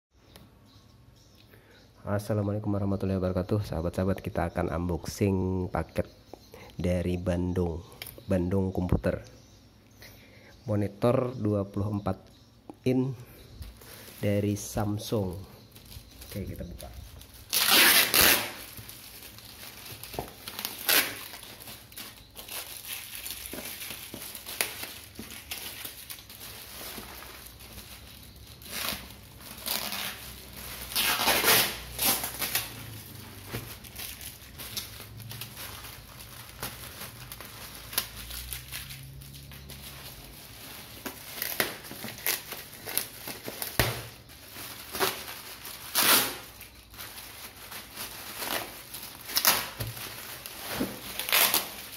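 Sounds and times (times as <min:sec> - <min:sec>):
plastic bag crinkling: 0:13.9 - 0:51.9.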